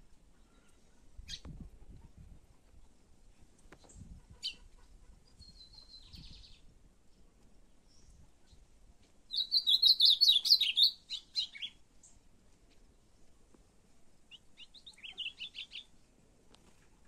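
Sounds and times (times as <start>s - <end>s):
songbirds chirping: 0.0s - 17.0s
buzzy bird trill: 9.3s - 11.8s.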